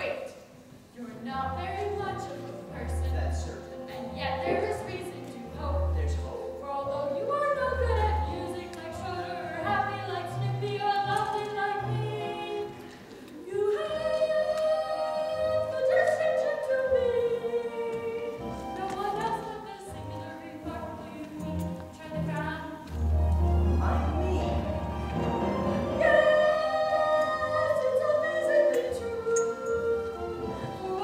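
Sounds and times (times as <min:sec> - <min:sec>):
instrumental accompaniment: 0:01.3 - 0:31.0
boy and girl singing: 0:07.2 - 0:21.6, 0:26.0 - 0:31.0.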